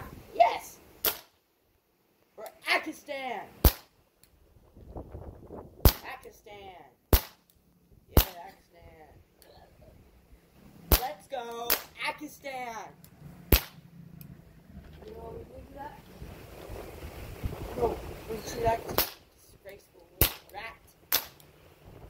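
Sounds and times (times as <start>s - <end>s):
air pistol shots: 1.0s - 1.4s, 3.6s - 3.9s, 7.1s - 7.4s, 10.9s - 11.1s, 13.5s - 13.8s, 18.9s - 19.2s, 21.1s - 21.4s.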